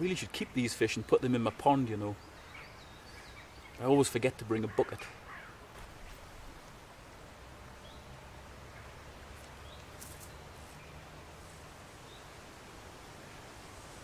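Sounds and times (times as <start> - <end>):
low background hiss: 0.0 - 14.0
faint bird chirps: 2.1 - 5.6.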